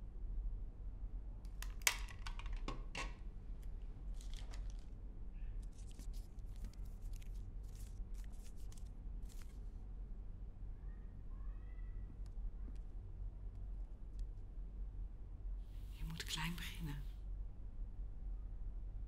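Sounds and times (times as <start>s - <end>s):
objects rustling and clicking: 1.5s - 5.0s, 5.6s - 9.6s
steady low hum: 3.1s - 19.0s.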